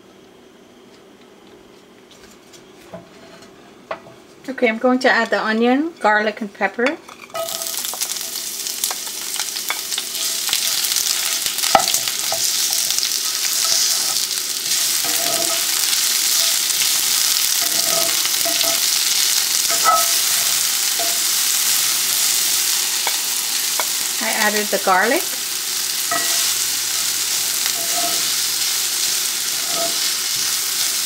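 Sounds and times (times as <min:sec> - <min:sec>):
vegetables sizzling in hot oil: 0:07.2 - 0:31.0.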